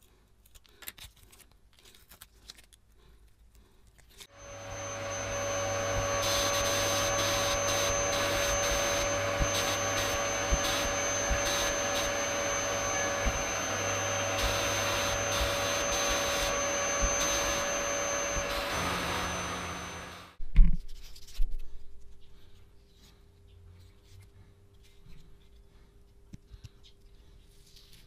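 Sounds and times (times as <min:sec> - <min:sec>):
blast cabinet humming: 0:04.3 - 0:20.4.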